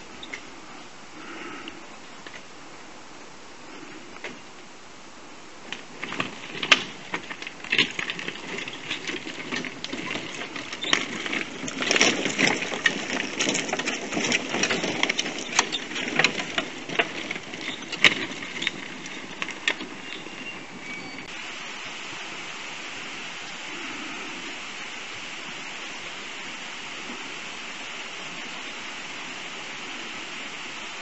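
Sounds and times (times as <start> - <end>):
rocks clacking and knocking: 5.6 - 21.4
tyres crunching on stones: 5.6 - 21.4.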